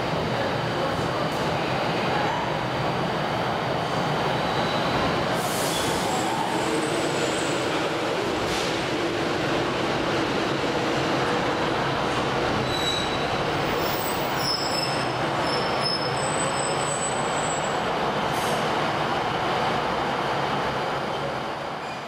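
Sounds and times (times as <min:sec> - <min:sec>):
diesel train engine rumbling: 0:00.0 - 0:22.0
train wheels and brakes squealing: 0:04.2 - 0:08.8, 0:12.6 - 0:18.6, 0:21.1 - 0:22.0.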